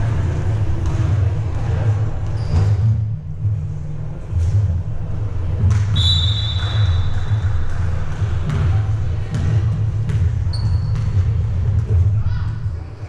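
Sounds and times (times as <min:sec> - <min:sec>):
steady low rumble: 0:00.0 - 0:06.2
ball bouncing on gym floor: 0:00.8 - 0:03.0, 0:05.6 - 0:12.5
high whistle-like tone: 0:06.0 - 0:07.2.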